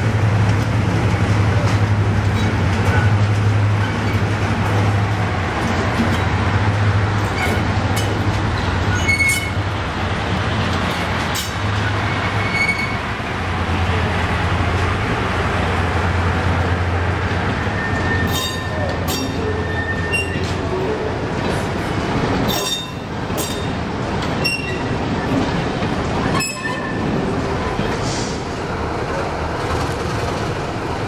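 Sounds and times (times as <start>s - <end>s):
diesel locomotive engine humming: 0.0s - 31.0s
wheels squealing on rails: 7.2s - 9.8s, 11.3s - 13.1s, 17.4s - 21.1s, 22.4s - 25.5s, 26.2s - 27.3s.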